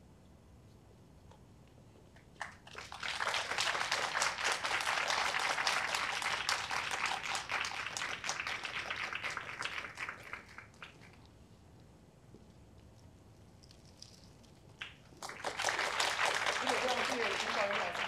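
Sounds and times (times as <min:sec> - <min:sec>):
audience applauding: 0:02.4 - 0:11.1, 0:14.8 - 0:18.0.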